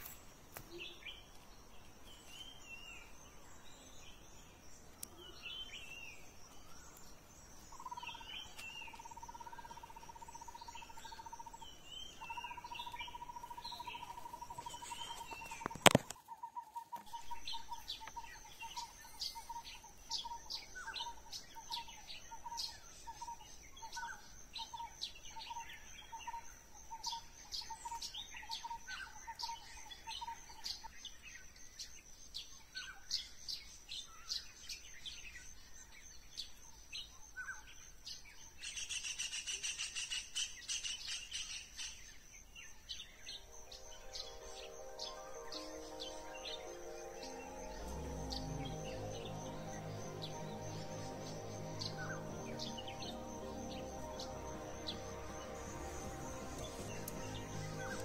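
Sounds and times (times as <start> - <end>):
high insect drone: 0.0 - 16.3, 16.9 - 32.4, 33.1 - 58.0
birds chirping: 0.0 - 30.9, 36.2 - 58.0.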